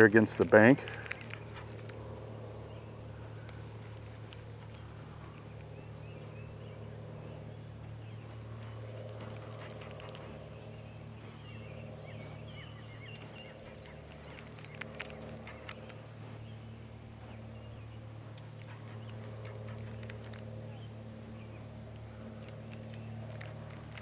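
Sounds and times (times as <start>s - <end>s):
small birds chirping: 0.0s - 24.0s
steady low hum: 0.0s - 24.0s
sharp clicks: 0.4s - 2.0s, 3.4s - 4.9s, 13.0s - 16.1s, 18.3s - 20.5s, 21.9s - 24.0s.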